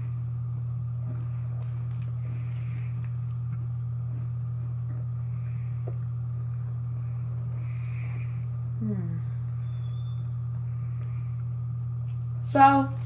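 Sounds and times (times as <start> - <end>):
low electrical hum: 0.0 - 13.0
person chewing cracker: 1.1 - 3.5.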